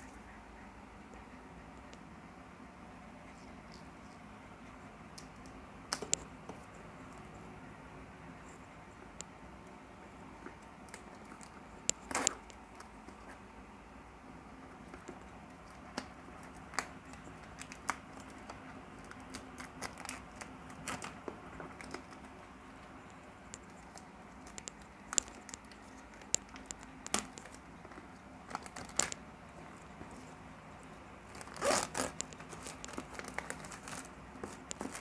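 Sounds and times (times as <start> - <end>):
plastic wrap crinkling: 15.8 - 22.4, 23.0 - 30.4, 31.2 - 35.0.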